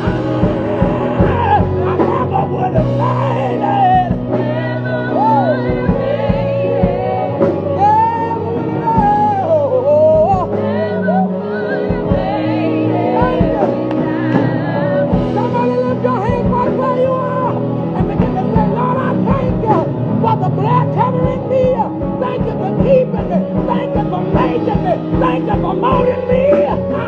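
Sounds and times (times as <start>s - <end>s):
drum hits: 0.0s - 4.7s
instrumental chords: 0.0s - 27.0s
man singing gospel: 0.0s - 27.0s.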